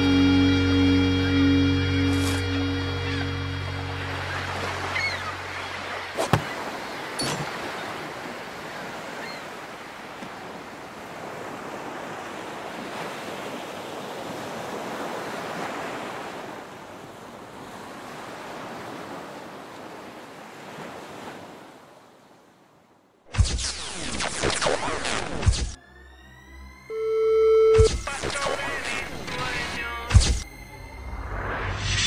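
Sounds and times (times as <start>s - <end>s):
sea waves washing: 2.1s - 22.2s.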